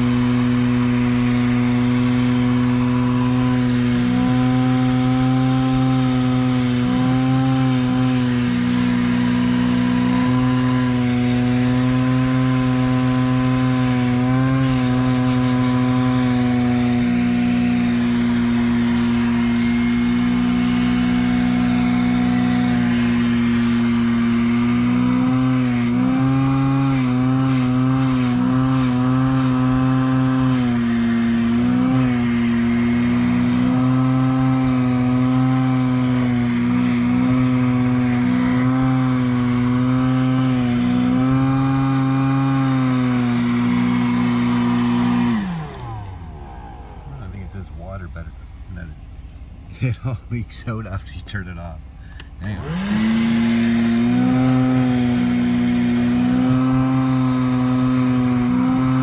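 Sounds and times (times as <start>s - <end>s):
vacuum motor running: 0.0s - 49.7s, 51.5s - 59.0s.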